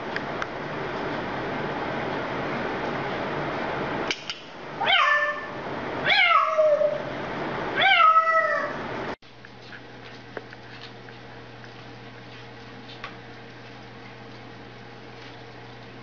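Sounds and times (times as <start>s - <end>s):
low steady hum: 0.0s - 16.0s
cat meowing: 4.8s - 7.0s, 7.8s - 8.8s.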